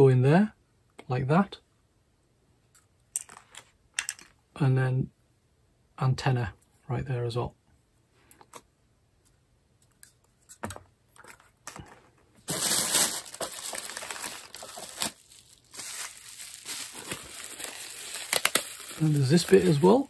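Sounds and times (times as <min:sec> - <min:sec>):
small parts clicking and tapping: 0:02.7 - 0:04.4
plastic packaging crinkling: 0:12.4 - 0:20.0.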